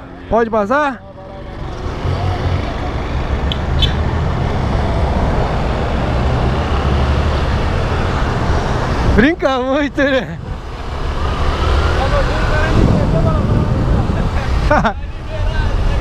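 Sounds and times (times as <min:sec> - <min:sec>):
wind and road noise: 0:00.0 - 0:16.0.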